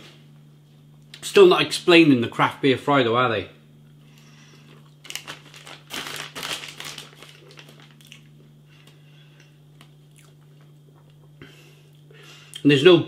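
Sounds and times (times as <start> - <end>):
plastic bag crinkling: 4.6 - 8.9.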